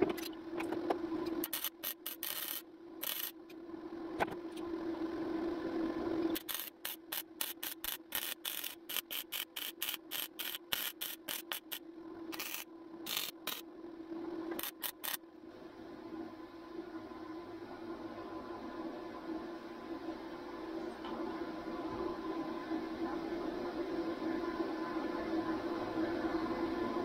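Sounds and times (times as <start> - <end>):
steady low hum: 0.0 - 27.0
welder crackling: 1.4 - 3.4, 6.4 - 13.6, 14.6 - 15.2.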